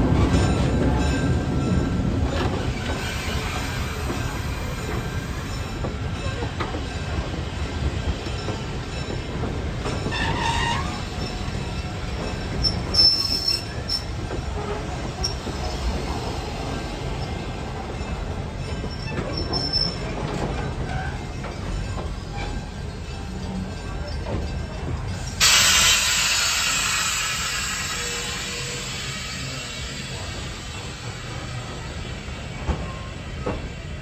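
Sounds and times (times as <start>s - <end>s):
train wheels rumbling on rails: 0.0s - 34.0s
wheel squeals: 9.9s - 11.2s, 12.6s - 15.5s, 18.7s - 20.2s.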